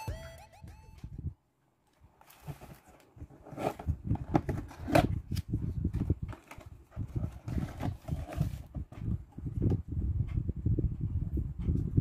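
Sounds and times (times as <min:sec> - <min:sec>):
cardboard boxes handled: 0:02.2 - 0:09.4.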